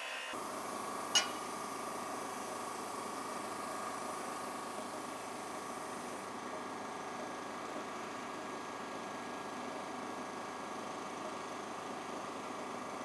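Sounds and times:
electrical hum with hiss: 0.0s - 13.0s
sharp metallic clink: 1.2s - 1.5s.

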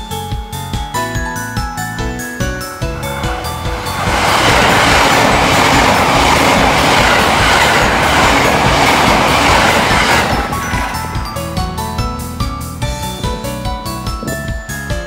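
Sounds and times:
electric train passing at speed: 2.5s - 13.6s.

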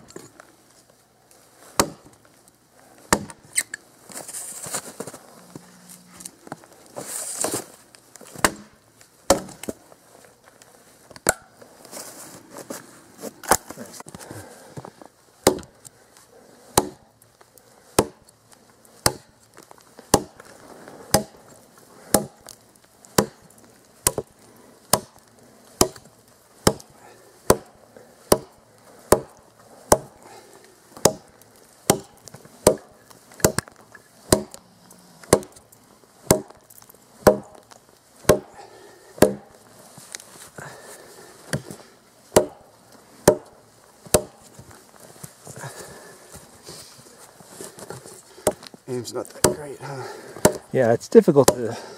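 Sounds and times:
tomahawk chopping log: 1.7s - 2.2s, 3.1s - 3.4s, 8.3s - 9.8s, 11.2s - 11.5s, 15.4s - 15.9s, 16.7s - 17.1s, 17.9s - 18.4s, 19.0s - 20.5s, 21.1s - 34.6s, 35.2s - 39.6s, 41.5s - 44.6s, 47.6s - 51.9s.

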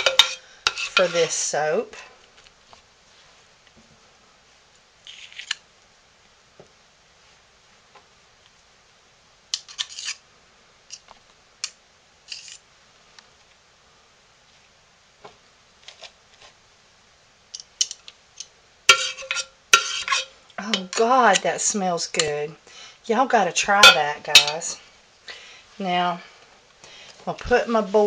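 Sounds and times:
spoon clattering against pot: 0.0s - 0.9s, 18.9s - 21.1s, 23.8s - 24.7s
metal spoons scraping: 0.0s - 1.4s, 18.9s - 21.4s, 23.7s - 24.8s.

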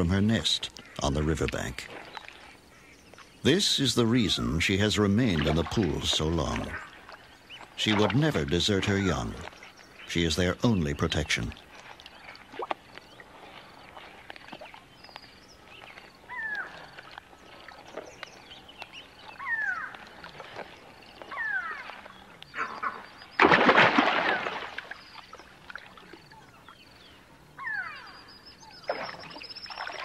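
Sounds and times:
crocodile hatchlings chirping: 0.0s - 17.1s
loud splash: 23.4s - 25.0s.

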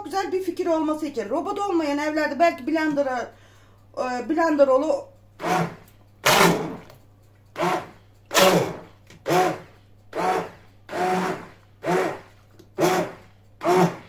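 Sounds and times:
hand blender motor whine: 5.4s - 6.9s, 7.6s - 14.0s.

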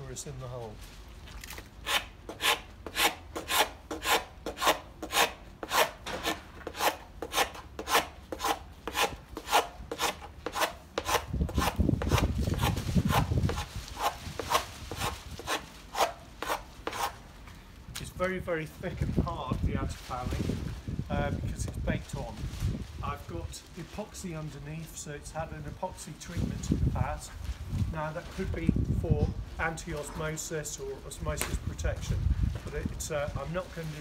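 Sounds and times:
scraper rasping on hull: 1.8s - 17.2s.

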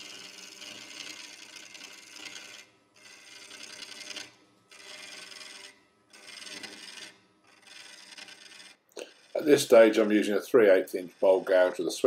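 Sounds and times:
lathe gouge hissing cut on wood: 9.0s - 12.0s.

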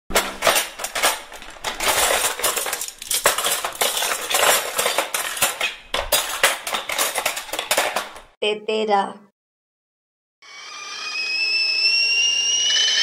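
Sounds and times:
metal cutlery clinking: 0.1s - 8.3s.

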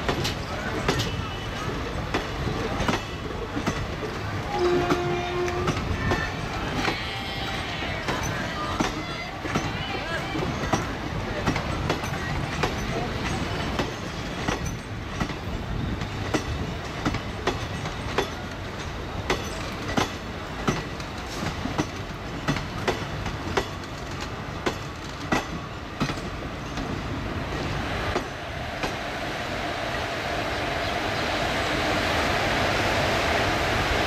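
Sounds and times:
train wheels clacking over rail joints: 0.0s - 27.1s
train rumble: 0.0s - 34.0s.

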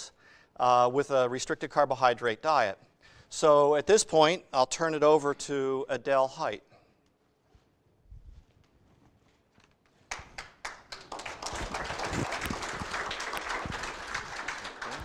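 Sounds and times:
audience applauding: 10.1s - 15.0s.

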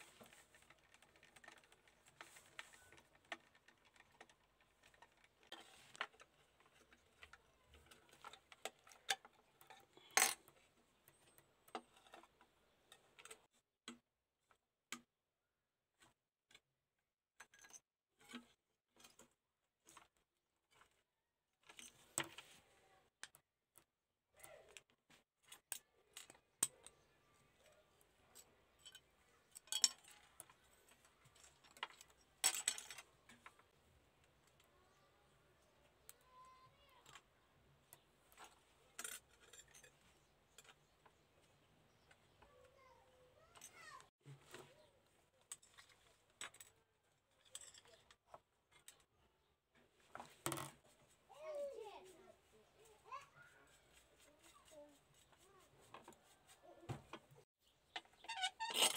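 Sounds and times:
metal toy clicks and scrapes: 0.0s - 13.5s, 24.6s - 33.8s, 37.9s - 41.2s, 57.3s - 58.9s.

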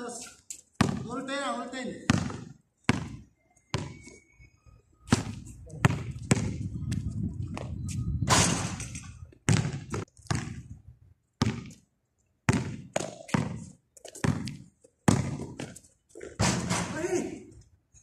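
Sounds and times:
basketball bouncing on concrete: 0.8s - 1.1s, 2.0s - 4.2s, 5.1s - 7.7s, 9.3s - 10.8s, 11.4s - 11.8s, 12.4s - 16.7s.

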